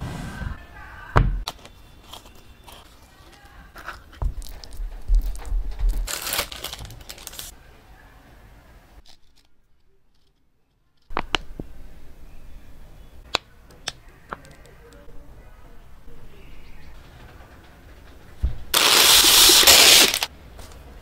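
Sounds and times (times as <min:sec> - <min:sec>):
plastic film crinkling and tearing: 0:01.4 - 0:07.5, 0:18.8 - 0:20.3.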